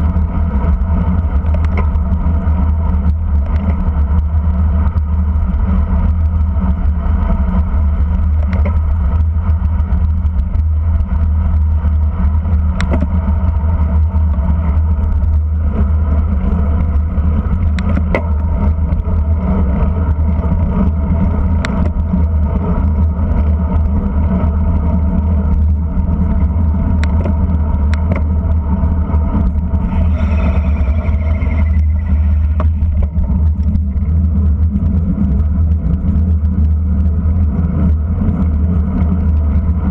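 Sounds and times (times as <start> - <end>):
road rumble: 0.0 - 39.9
wind buffeting: 14.6 - 36.7
falling squeal: 29.8 - 33.0.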